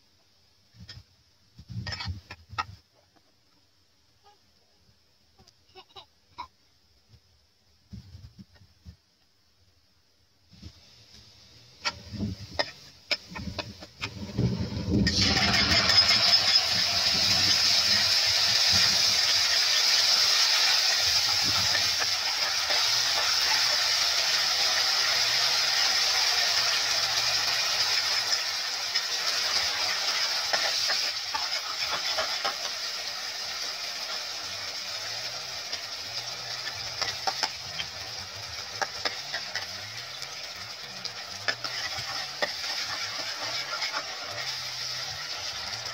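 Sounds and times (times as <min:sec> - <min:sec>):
sauce sizzling in hot oil: 0:10.5 - 0:45.9.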